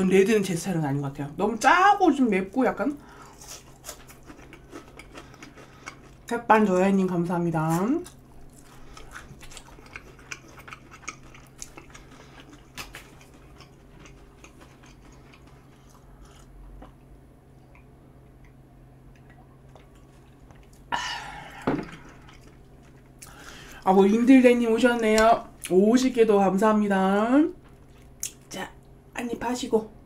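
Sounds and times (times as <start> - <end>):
person chewing: 3.2 - 6.3, 8.0 - 23.8.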